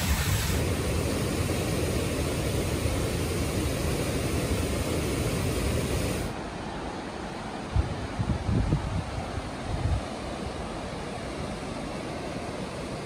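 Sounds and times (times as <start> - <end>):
river rushing over boulders: 0.0 - 8.5.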